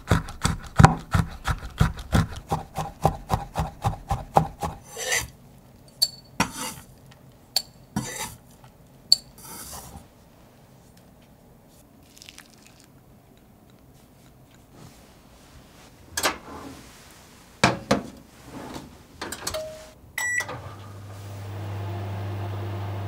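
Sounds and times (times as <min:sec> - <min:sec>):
microwave oven humming: 0:19.5 - 0:23.0.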